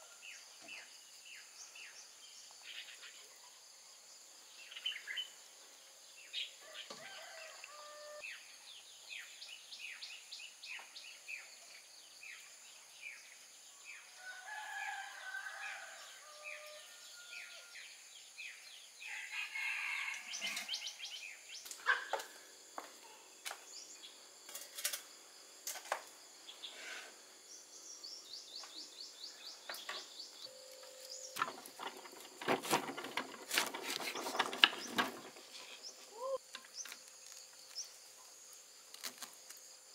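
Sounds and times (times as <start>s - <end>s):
high insect drone: 0.0s - 39.9s
birds chirping: 26.5s - 38.0s.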